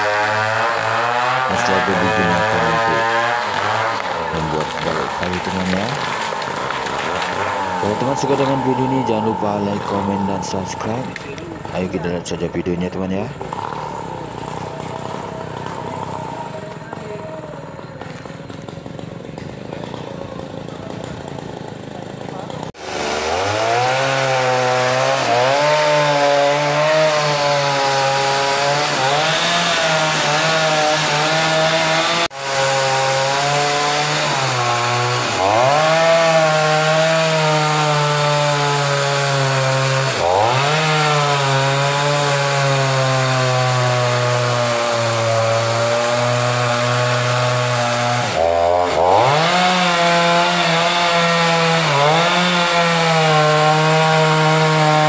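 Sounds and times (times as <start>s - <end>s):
chainsaw cutting log: 0.0s - 55.0s.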